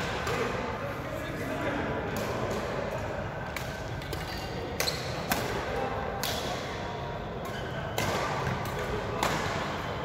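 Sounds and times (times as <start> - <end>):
rackets striking shuttlecock: 3.4 - 6.6, 7.4 - 9.8.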